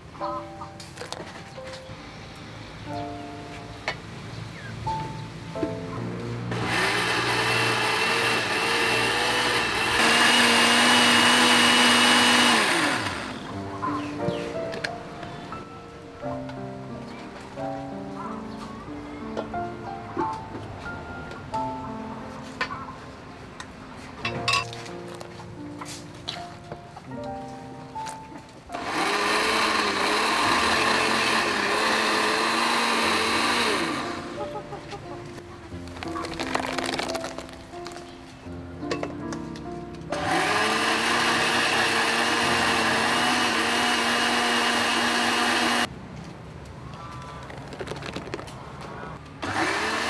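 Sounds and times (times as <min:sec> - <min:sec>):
blender motor whining: 0:06.5 - 0:13.5, 0:28.8 - 0:34.4, 0:40.1 - 0:45.9, 0:49.4 - 0:50.0.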